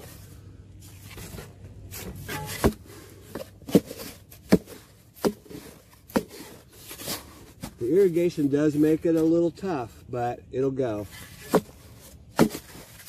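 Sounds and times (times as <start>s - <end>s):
shovel scraping into soil: 0.0s - 10.0s, 10.9s - 13.0s.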